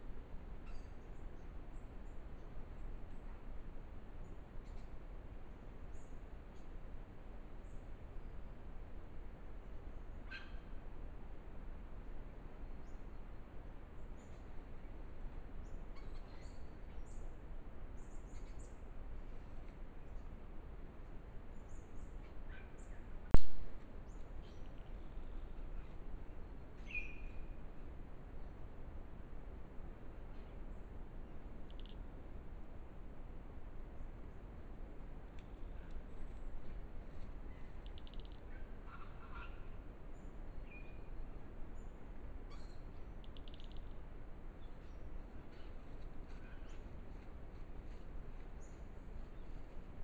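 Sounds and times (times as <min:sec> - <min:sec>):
steady background noise: 0:00.0 - 0:50.0
steady low hiss: 0:00.0 - 0:50.0
faint bird chirps: 0:00.6 - 0:03.4, 0:09.9 - 0:10.8, 0:15.6 - 0:17.4, 0:18.0 - 0:18.9, 0:21.5 - 0:27.8, 0:30.3 - 0:32.1, 0:35.3 - 0:50.0
small birds calling: 0:10.2 - 0:10.7, 0:31.6 - 0:32.0, 0:37.3 - 0:41.2, 0:41.8 - 0:44.0.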